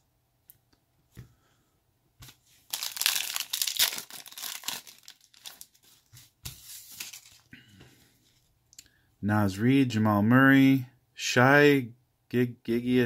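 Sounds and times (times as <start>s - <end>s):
plastic wrapper tearing and crinkling: 2.6s - 6.1s, 6.8s - 7.5s.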